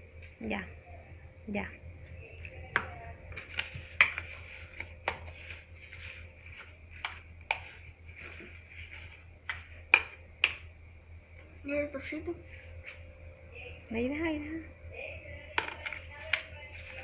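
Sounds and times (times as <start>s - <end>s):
metal spoon tapping on plastic: 15.5s - 16.5s.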